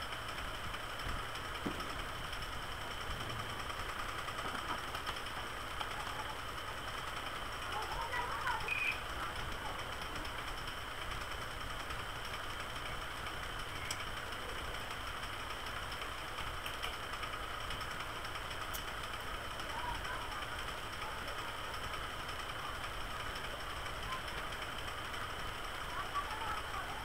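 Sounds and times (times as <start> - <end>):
background hum and hiss: 0.0 - 27.0
faint clicks: 13.8 - 14.1, 16.6 - 17.0, 18.7 - 19.0.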